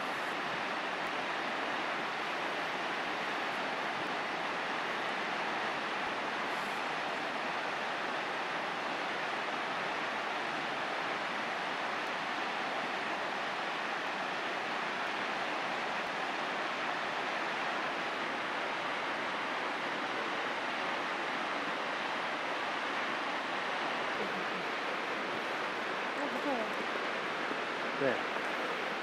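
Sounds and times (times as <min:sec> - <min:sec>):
waterfall rushing: 0:00.0 - 0:29.0.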